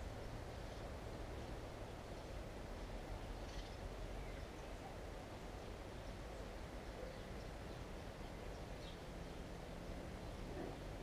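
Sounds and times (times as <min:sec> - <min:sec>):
faint bird chirps: 0:03.3 - 0:06.1.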